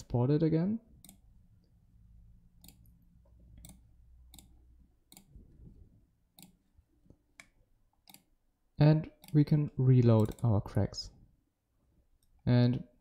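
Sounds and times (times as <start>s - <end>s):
faint mouse clicks: 6.3s - 8.3s, 10.2s - 10.5s.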